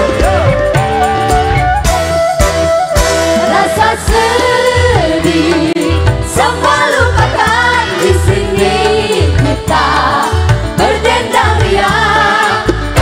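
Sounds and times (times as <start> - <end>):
bamboo flute melody: 0.0 - 4.4
bass and drum beat: 0.0 - 13.0
women singing together: 3.5 - 13.0.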